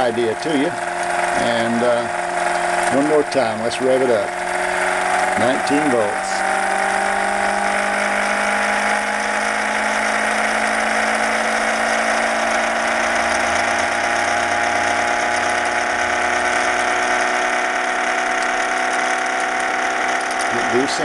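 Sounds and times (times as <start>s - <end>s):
electric motor whine: 0.0s - 21.0s
mechanical whir: 0.0s - 21.0s.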